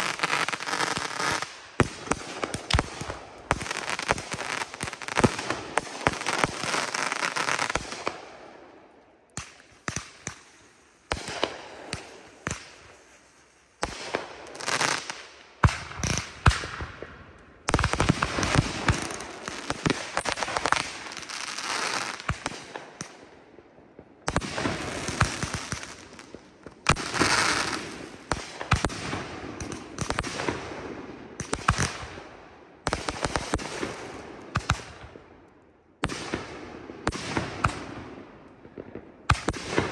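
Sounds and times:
fireworks bursting and crackling: 0:00.0 - 0:08.7, 0:09.3 - 0:35.3, 0:36.0 - 0:39.9
fireworks launch shots: 0:17.7 - 0:23.2, 0:24.2 - 0:30.7.

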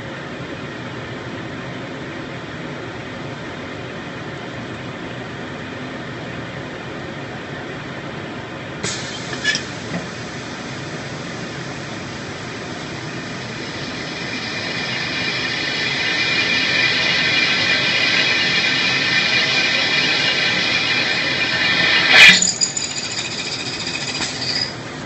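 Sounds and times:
hiss: 0:08.8 - 0:24.8
cutting machine running: 0:12.2 - 0:24.8.

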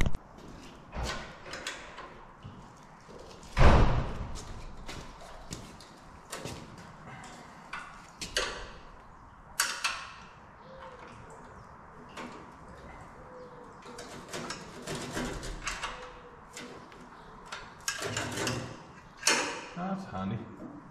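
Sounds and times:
heavy thud: 0:03.6 - 0:04.5.

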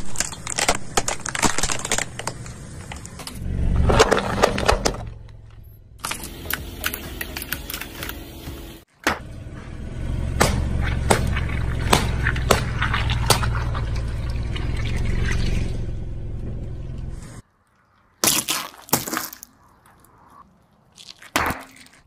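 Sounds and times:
tyre crushing eggs and packets: 0:00.0 - 0:05.2, 0:06.0 - 0:09.2, 0:17.4 - 0:22.0
sharp crack: 0:10.3 - 0:13.8
water balloons popping: 0:10.4 - 0:15.5, 0:18.2 - 0:19.5.

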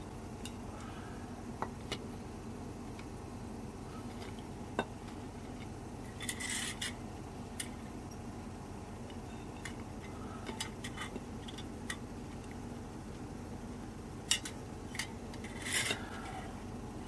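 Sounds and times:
metal scraping on concrete: 0:06.1 - 0:07.0, 0:15.4 - 0:16.1.

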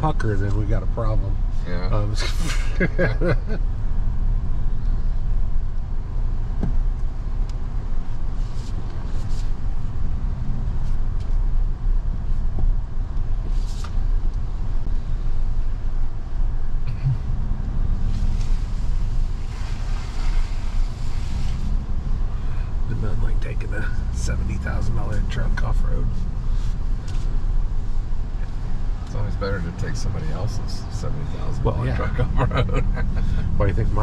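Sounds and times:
engine and tyres rumbling: 0:00.0 - 0:34.0
rustling or scraping noises: 0:08.3 - 0:09.9, 0:13.4 - 0:14.1, 0:18.0 - 0:22.0, 0:26.1 - 0:28.6.

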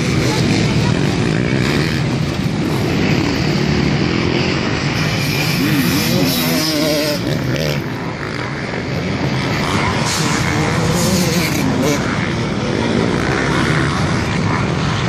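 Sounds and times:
dirt bike engines revving: 0:00.0 - 0:15.0.

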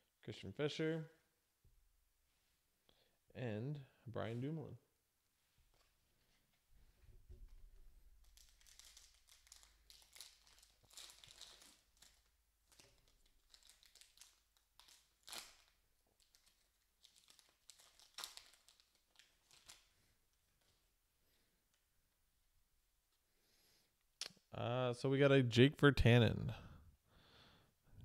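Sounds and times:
foil wrapper crinkling: 0:08.1 - 0:20.0.

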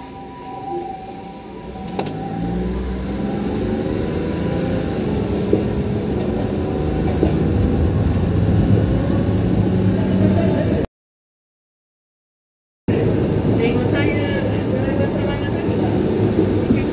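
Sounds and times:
ambulance siren: 0:00.0 - 0:09.3
streetcar motors humming: 0:00.0 - 0:10.8, 0:12.9 - 0:16.9
wheels rumbling on track: 0:00.0 - 0:10.9, 0:12.9 - 0:16.9.

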